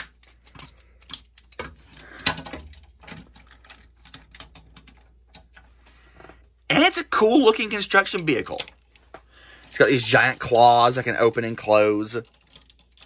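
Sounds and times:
plastic toy parts clicking: 0.0 - 5.5, 9.6 - 13.0.

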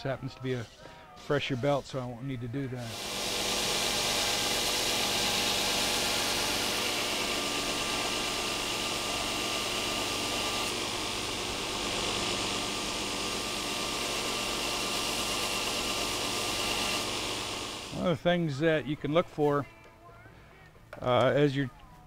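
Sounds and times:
belt grinder grinding steel: 0.0 - 18.1
motor hum: 2.9 - 18.1.

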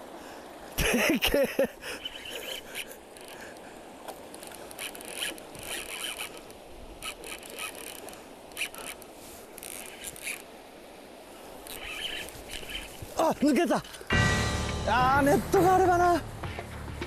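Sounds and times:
river running over rocks: 0.0 - 17.0
fishing reel drag rasping: 1.8 - 10.5, 11.6 - 13.2.

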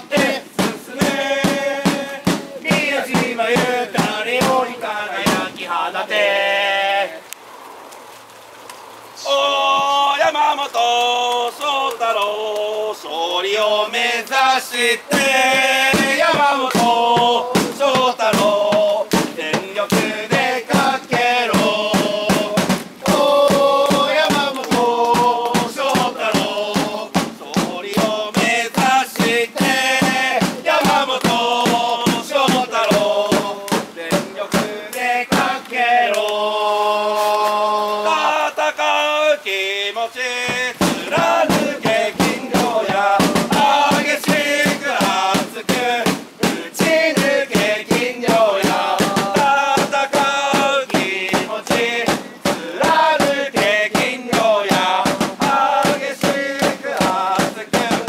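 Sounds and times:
hand drum beat: 0.0 - 5.6, 15.1 - 35.7, 40.4 - 58.0
crowd chanting in unison: 0.0 - 7.2, 9.2 - 58.0.

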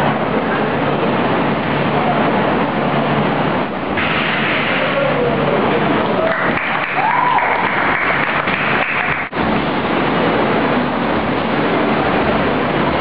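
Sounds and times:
crowd voices: 4.6 - 9.3
audience applauding: 6.1 - 9.3.

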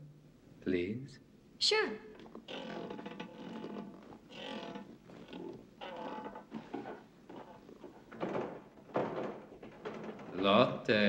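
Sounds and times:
window frame creaking and clunking: 2.2 - 10.7.

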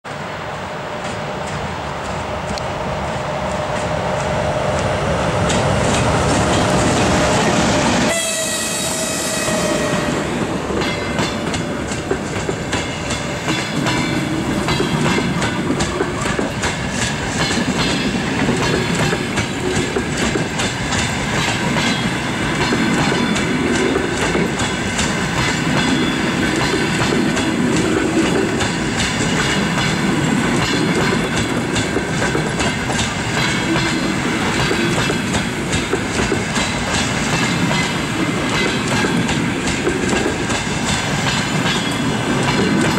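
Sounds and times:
locomotive high whining tone: 0.1 - 17.3
train wheels clicking over rail joints: 0.9 - 42.9.

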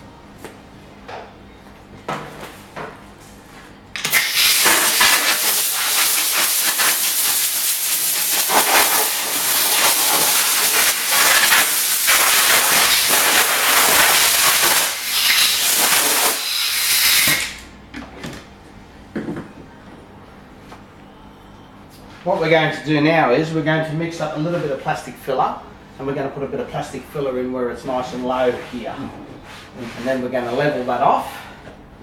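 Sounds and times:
compressed air blow gun hiss: 4.1 - 17.6.

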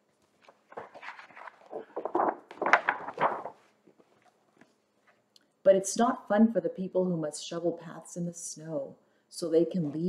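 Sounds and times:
book pages turning: 0.2 - 5.2.

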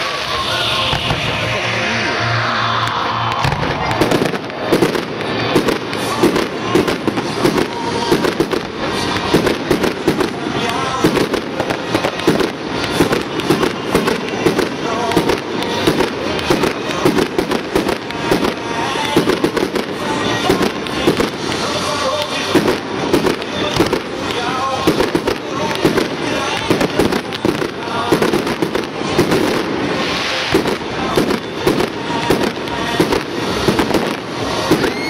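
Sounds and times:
firework shells bursting: 2.8 - 35.0.

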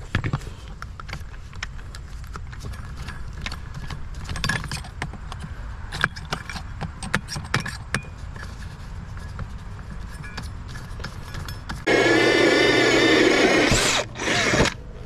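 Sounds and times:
hole saw clicking and scraping: 10.1 - 14.8.

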